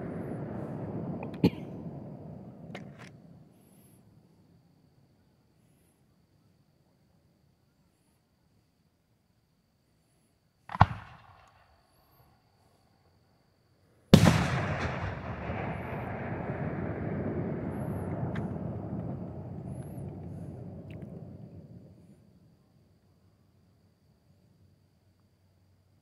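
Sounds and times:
rumbling tail: 0:00.0 - 0:03.5, 0:14.2 - 0:22.0
firework shell launch report: 0:00.0 - 0:04.0, 0:10.6 - 0:12.4, 0:14.2 - 0:22.2
firework bursting bang: 0:14.2 - 0:21.9.

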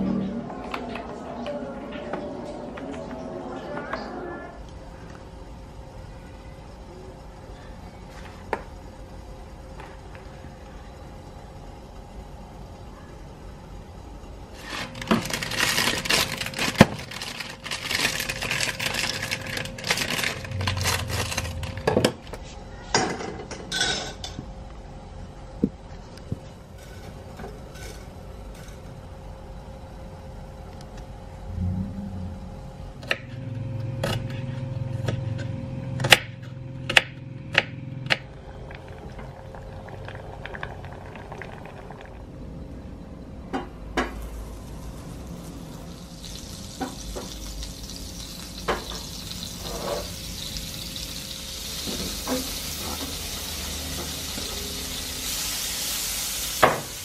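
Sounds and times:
onion sizzling in a pan: 0:44.2 - 0:57.0.

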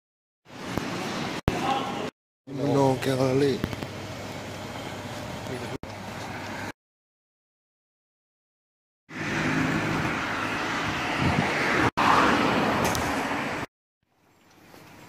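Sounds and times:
car passing by: 0:09.1 - 0:13.7.

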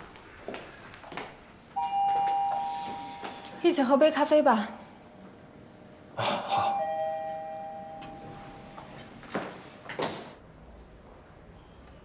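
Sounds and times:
elevator arrival chime: 0:01.8 - 0:03.3, 0:06.7 - 0:09.1
footsteps on hard floor: 0:08.8 - 0:10.2.

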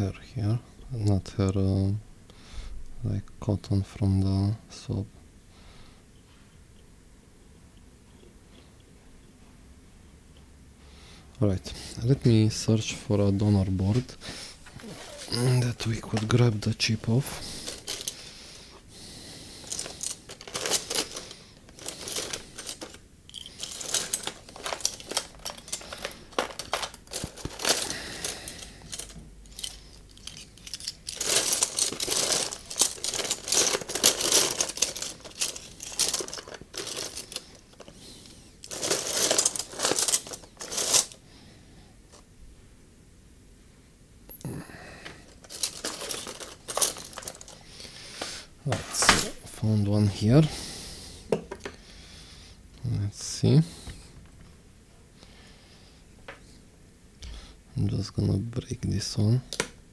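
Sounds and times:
plastic packaging crinkling: 0:14.8 - 0:18.4, 0:19.5 - 0:41.2, 0:45.2 - 0:48.2.

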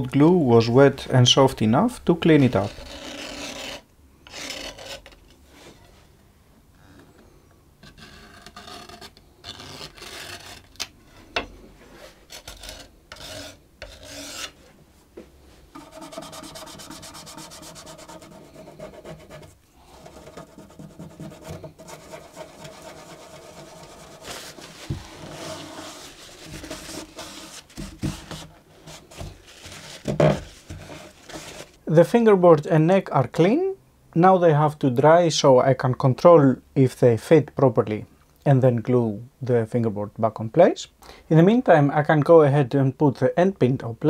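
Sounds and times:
blade scraping glue off wood: 0:12.3 - 0:14.6
cloth wiping: 0:15.8 - 0:31.8.

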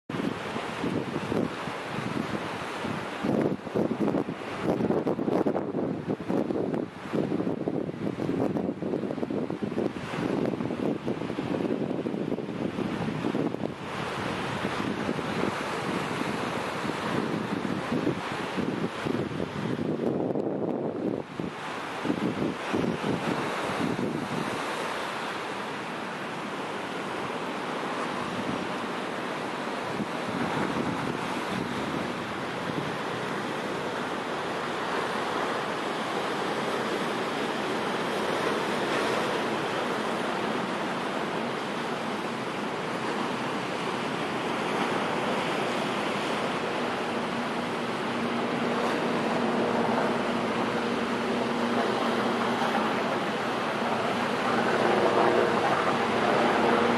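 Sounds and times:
hydrofoil turbine rushing: 0:00.1 - 0:56.9
sea wash: 0:00.1 - 0:56.9
engine hum: 0:32.3 - 0:56.9.

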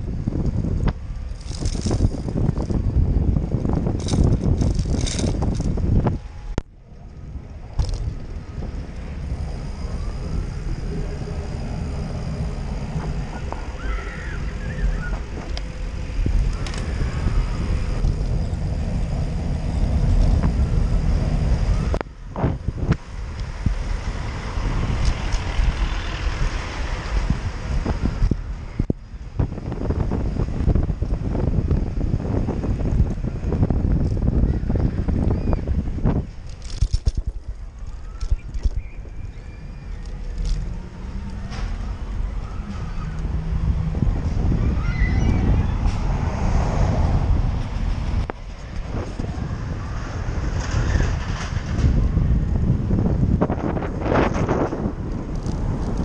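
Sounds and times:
bicycle tyre rumble on pavement: 0:00.0 - 0:56.0
wind on microphone: 0:00.0 - 0:56.0.

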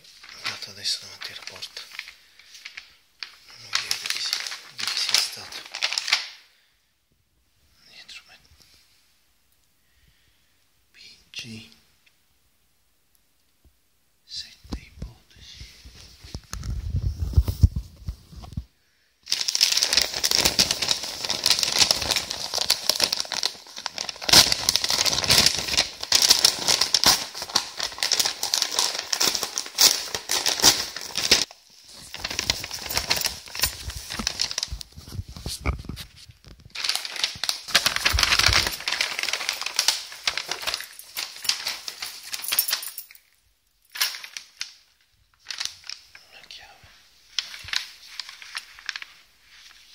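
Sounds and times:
padded envelope crinkling and tearing: 0:00.0 - 0:06.4, 0:16.2 - 0:18.6, 0:19.2 - 0:42.9, 0:43.9 - 0:49.9.

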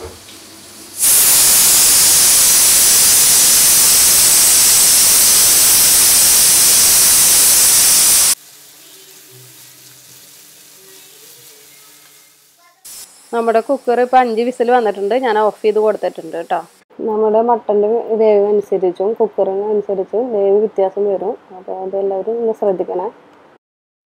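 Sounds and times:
pressure cooker whistle hiss: 0:00.9 - 0:08.4.

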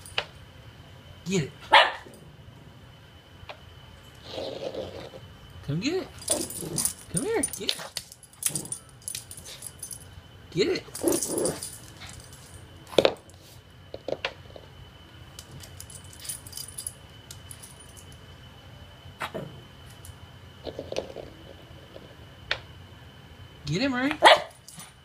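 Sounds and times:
dog collar tags jingling: 0:06.1 - 0:10.1, 0:10.8 - 0:12.6, 0:15.4 - 0:18.2.

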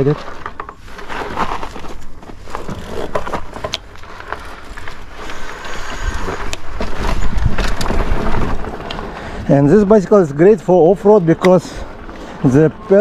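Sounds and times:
bike clicks and rattles: 0:00.0 - 0:13.0
bike tyres crunching over gravel: 0:00.0 - 0:13.0
wind rumble on microphone: 0:05.9 - 0:09.7.

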